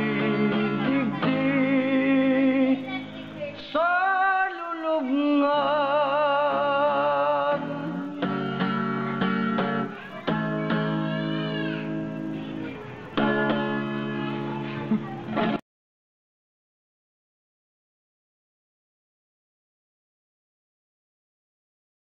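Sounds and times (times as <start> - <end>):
slow ballad with guitar and vocals: 0.0 - 12.0.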